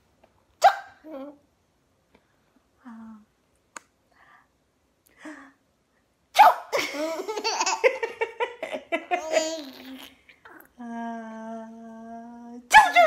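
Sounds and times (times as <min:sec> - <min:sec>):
mock sneeze: 0:00.6 - 0:01.0, 0:06.4 - 0:06.8
baby laughing: 0:06.7 - 0:10.6.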